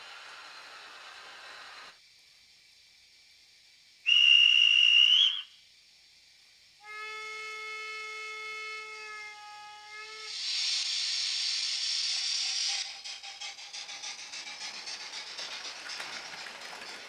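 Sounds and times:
steady hiss: 0.0s - 17.0s
dispatcher's whistle blast: 4.0s - 5.7s, 6.8s - 17.0s
steam locomotive whistle: 4.1s - 5.6s, 6.8s - 17.0s.

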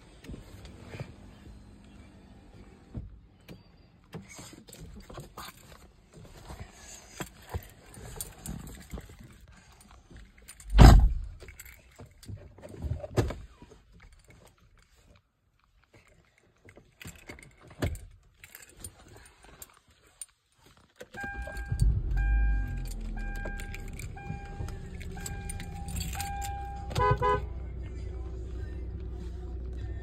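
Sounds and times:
loud thump: 10.7s - 11.4s.

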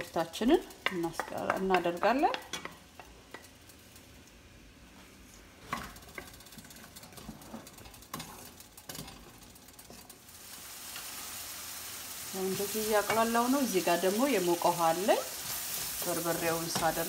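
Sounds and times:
onion sizzling in hot oil: 0.0s - 17.0s.

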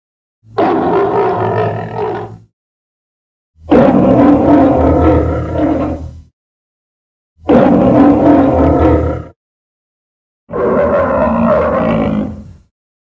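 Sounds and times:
lion roaring: 0.6s - 2.4s, 3.6s - 6.2s, 7.4s - 9.4s, 10.5s - 12.6s.

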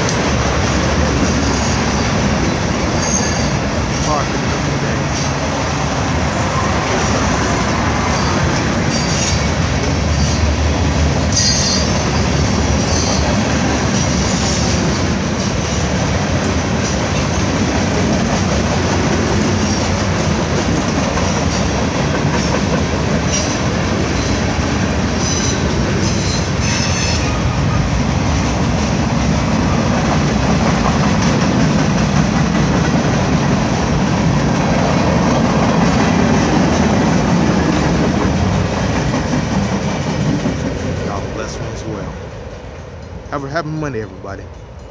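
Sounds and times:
train wheels rumbling on rails: 0.0s - 44.9s
high-pitched wheel squeals: 2.9s - 3.6s, 11.3s - 13.3s, 25.2s - 27.4s.

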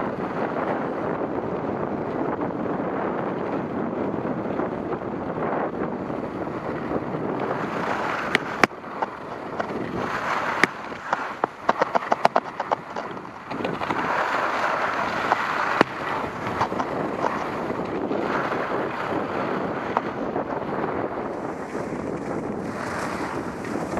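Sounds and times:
wind rushing over microphone: 0.0s - 23.9s
sharp clicks and scrapes: 7.4s - 18.0s.

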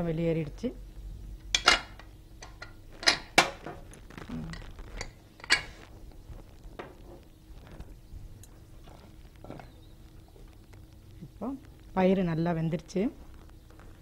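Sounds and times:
metal lid clinking: 5.4s - 5.7s.

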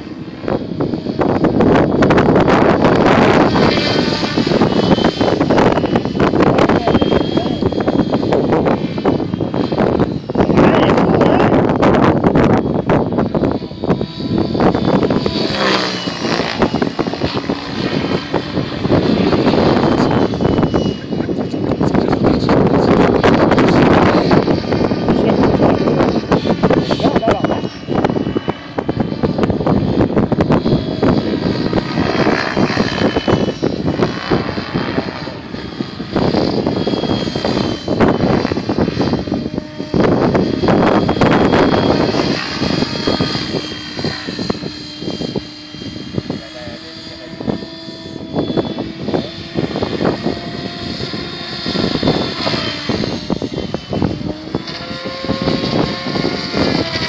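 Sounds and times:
rc helicopter rotor whine: 0.0s - 57.0s
wind buffeting microphone: 0.0s - 57.0s.

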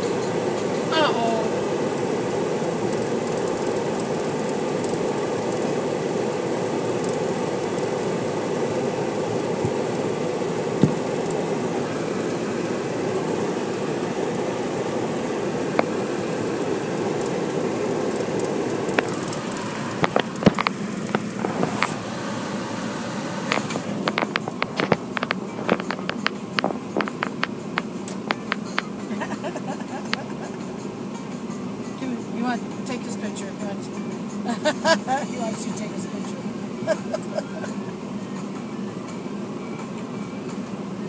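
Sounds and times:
car wash machinery rushing: 0.0s - 41.0s
sharp clicks and taps: 18.1s - 22.0s, 23.5s - 29.0s.

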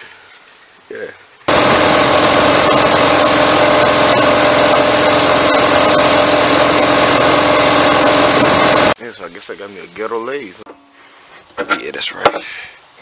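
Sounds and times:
sandpaper sanding shaft: 1.5s - 9.0s
small engine running: 1.5s - 9.0s.

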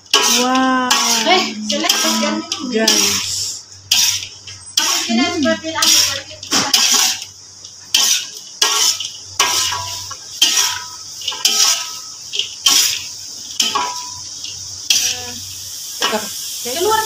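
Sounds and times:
low steady hum: 0.0s - 16.2s
metal spatula scraping wok: 0.0s - 17.0s.

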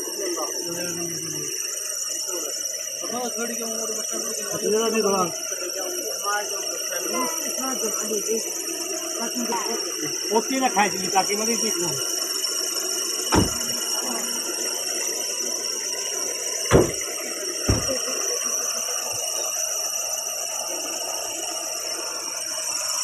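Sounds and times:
car doors slamming: 13.3s - 13.8s, 16.7s - 17.0s, 17.7s - 18.0s.

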